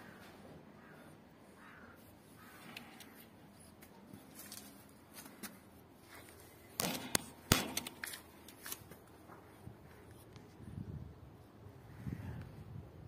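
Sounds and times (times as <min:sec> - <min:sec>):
sharp clicks and knocks: 0:06.7 - 0:08.9.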